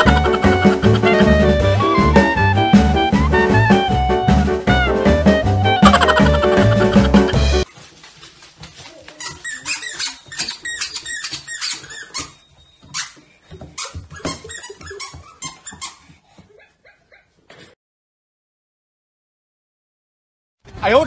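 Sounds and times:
dog toys squeaking: 0:09.0 - 0:16.2.

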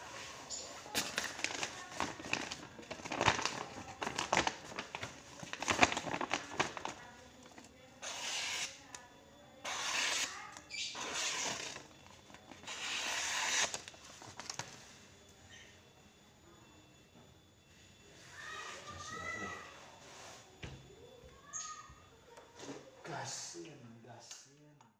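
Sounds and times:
paper crinkling: 0:00.8 - 0:07.7, 0:11.0 - 0:14.9
knife slicing through paper: 0:08.0 - 0:08.8, 0:09.6 - 0:10.3, 0:11.0 - 0:11.8, 0:12.6 - 0:13.8.

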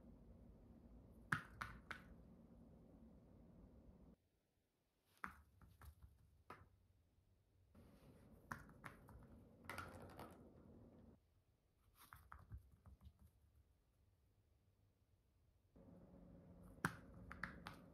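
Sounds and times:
ball rolling on floor: 0:08.5 - 0:11.2.

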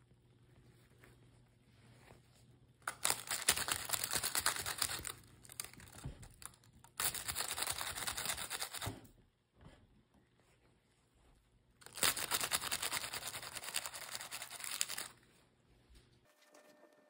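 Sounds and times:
baking paper crinkling: 0:01.0 - 0:09.0, 0:11.8 - 0:15.4.

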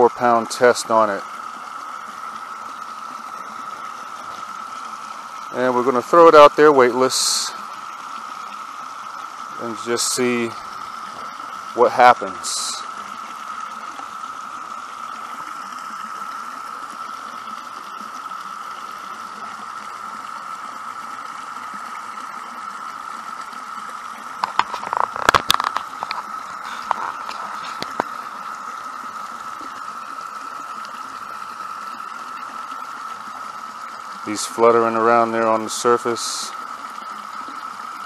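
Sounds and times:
creek flowing: 0:00.0 - 0:38.0
sharp clicks and knocks: 0:24.4 - 0:26.2.

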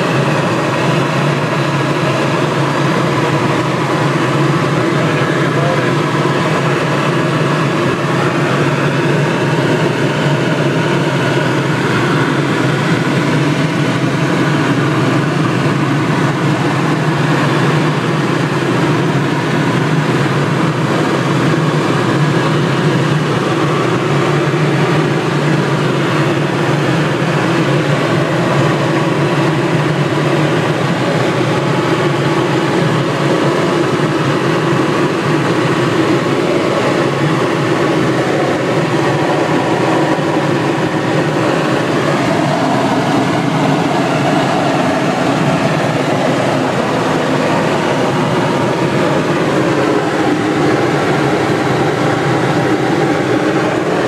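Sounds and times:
helicopter engine and rotor noise: 0:00.0 - 0:54.0.

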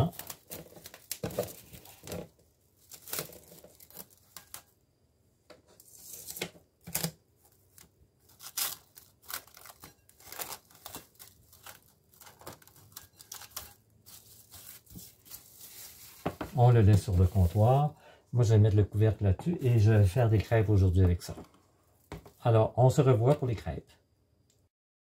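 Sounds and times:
cling wrap crinkling: 0:00.0 - 0:04.7, 0:05.9 - 0:17.9.

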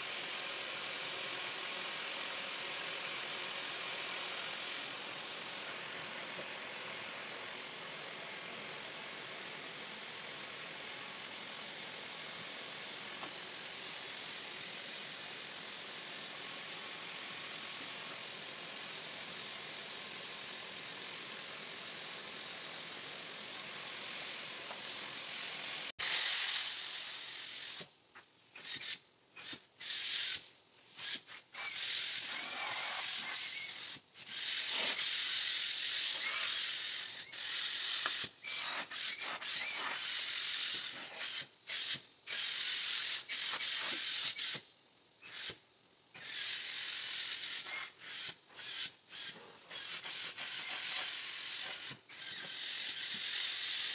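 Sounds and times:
vacuum hose hissing: 0:00.0 - 0:53.9
high whistle of air suction: 0:26.0 - 0:53.9.

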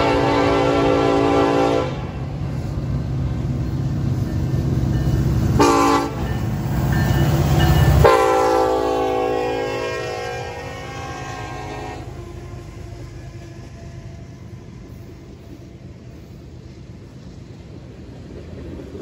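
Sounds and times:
locomotive horn blasts: 0:00.0 - 0:02.2, 0:05.6 - 0:06.4, 0:07.9 - 0:12.6
diesel locomotive rumble: 0:00.0 - 0:19.0.

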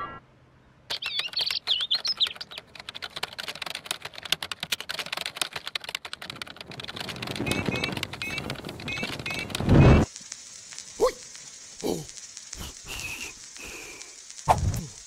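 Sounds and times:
short chirping squeaks: 0:00.9 - 0:02.6
fast typing on laptop keyboard: 0:00.9 - 0:09.6.

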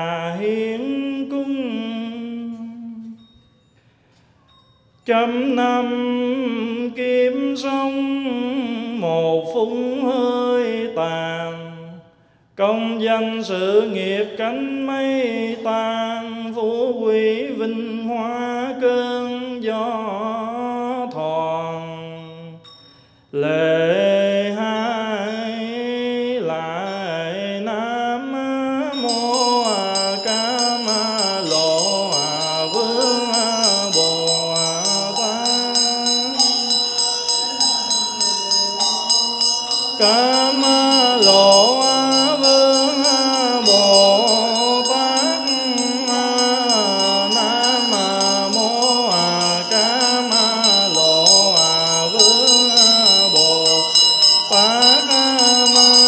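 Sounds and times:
monk chanting: 0:00.0 - 0:03.3, 0:05.0 - 0:22.6, 0:23.4 - 0:56.0
small bell ringing: 0:03.2 - 0:05.2, 0:22.6 - 0:23.2, 0:28.9 - 0:56.0.

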